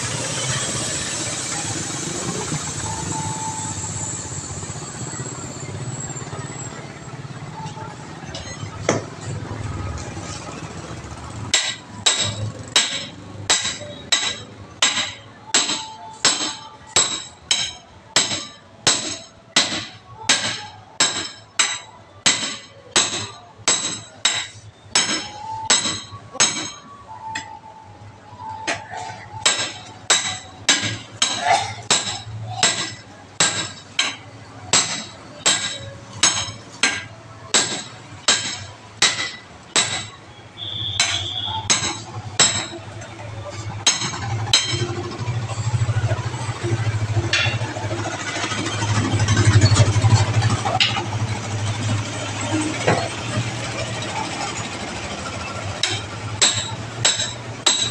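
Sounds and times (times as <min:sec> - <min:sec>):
hammer striking metal lever: 0:55.8 - 0:57.9.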